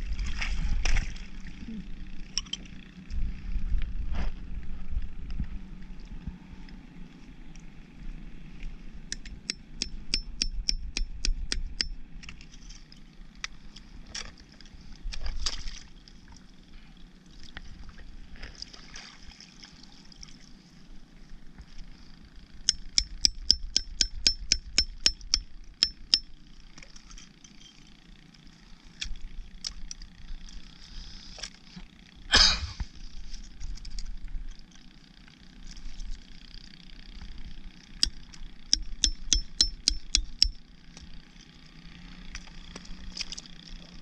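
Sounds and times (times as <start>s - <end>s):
metal tool tapping shells: 9.1s - 12.0s, 22.7s - 26.3s, 38.8s - 40.6s.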